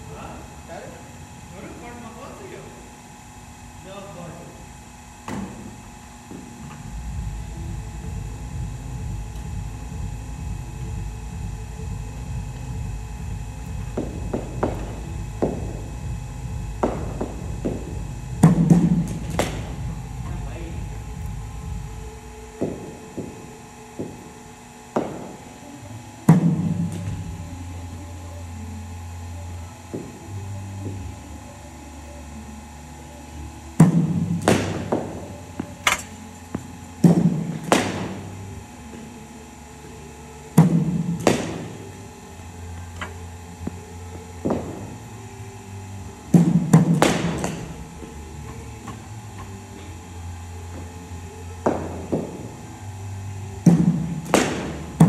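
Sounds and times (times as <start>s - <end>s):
cricket bat striking ball: 14.0s - 15.8s, 16.8s - 19.8s, 33.8s - 36.0s, 37.0s - 38.3s, 46.4s - 47.8s, 53.7s - 55.0s.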